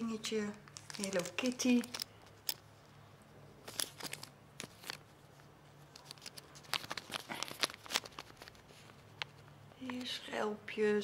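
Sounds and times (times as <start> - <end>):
plastic bag crinkling: 0.4 - 2.5, 3.6 - 9.5
metal charms clicking: 0.7 - 2.6.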